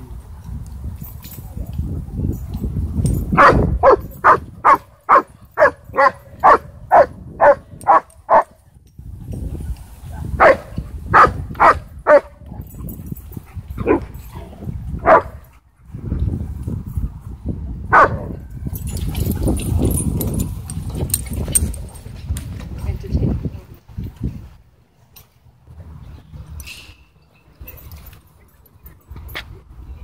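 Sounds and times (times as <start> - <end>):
dog barking: 3.4 - 8.5, 10.4 - 12.3, 15.0 - 15.4, 17.9 - 18.3.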